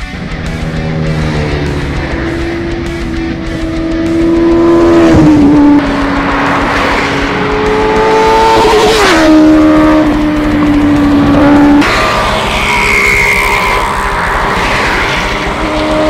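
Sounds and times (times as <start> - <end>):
motorcycle passing at high revs: 0.0 - 16.0.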